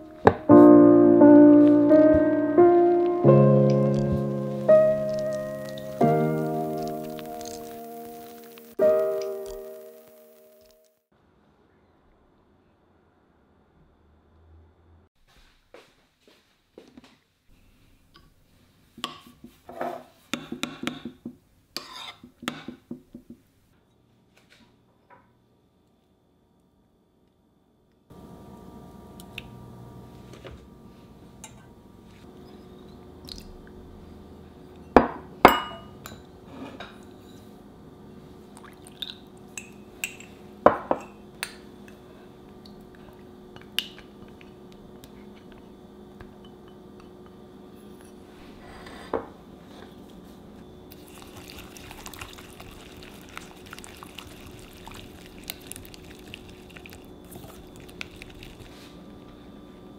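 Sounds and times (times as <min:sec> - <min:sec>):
utensils clinking on saucepan and bowls: 0:34.8 - 0:37.5, 0:39.6 - 0:41.7
whisk beating eggs in a bowl: 0:50.9 - 0:58.7.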